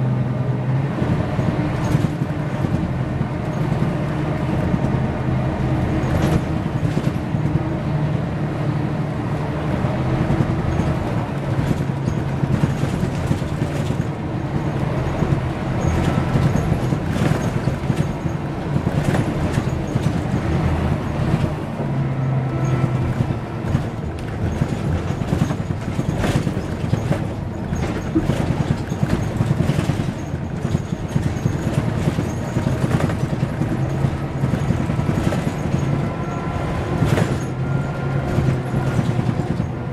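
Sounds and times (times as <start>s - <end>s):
bus engine drone: 0.0s - 39.9s
road noise: 0.0s - 39.9s
interior rattles: 10.2s - 21.6s, 22.5s - 39.9s.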